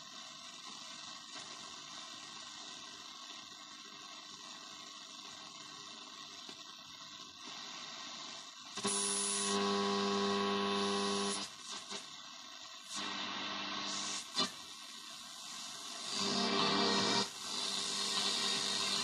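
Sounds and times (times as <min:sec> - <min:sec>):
loud buzzing hum: 0:08.8 - 0:12.0.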